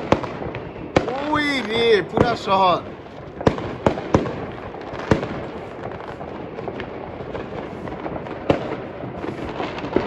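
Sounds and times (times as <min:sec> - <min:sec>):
din of many explosions: 0:00.0 - 0:10.0
sharp firework bangs: 0:00.0 - 0:10.0
small firecracker pops: 0:03.4 - 0:10.0.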